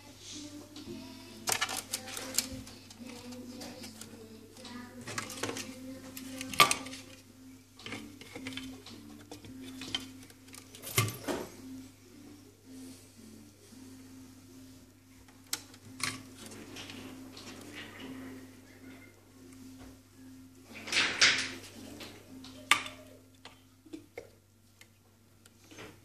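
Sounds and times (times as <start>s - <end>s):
plastic and metal parts clattering: 1.4s - 7.2s, 7.8s - 11.6s, 15.5s - 18.4s, 20.7s - 23.0s.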